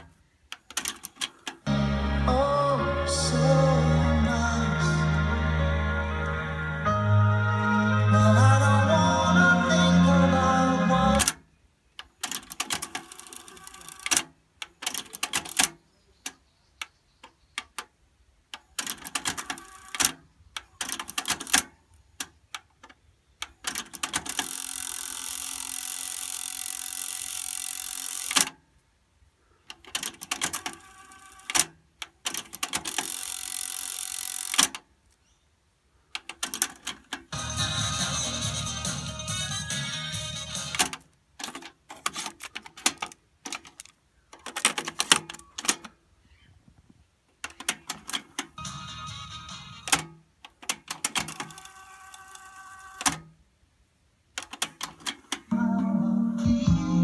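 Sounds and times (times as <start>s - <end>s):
tape winding whir: 24.2s - 28.6s.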